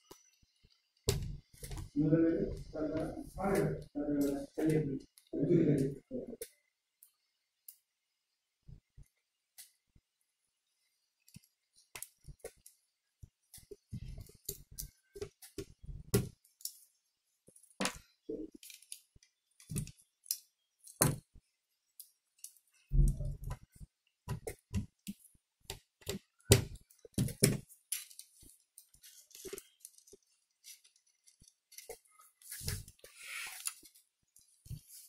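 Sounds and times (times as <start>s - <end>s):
small clicks and taps of parts: 11.2s - 34.9s.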